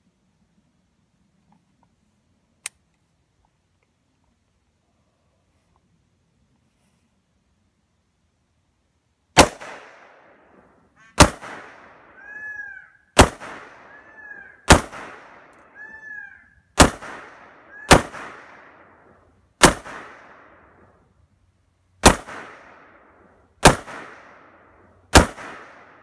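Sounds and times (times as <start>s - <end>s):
rifle shots: 9.4s - 12.2s, 13.2s - 15.6s, 16.8s - 20.9s, 22.0s - 26.0s.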